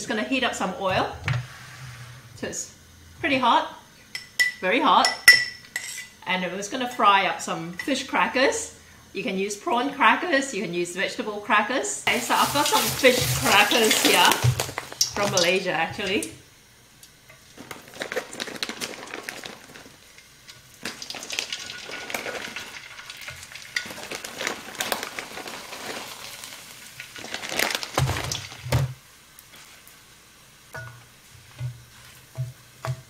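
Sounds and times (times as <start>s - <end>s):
crackers sizzling in hot oil: 12.0s - 33.0s
utensil knocking on pan: 31.6s - 33.0s.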